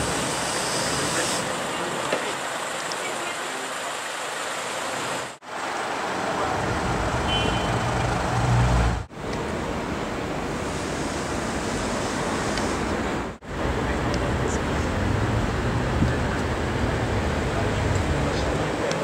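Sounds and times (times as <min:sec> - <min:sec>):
street traffic noise: 0:00.0 - 0:19.0.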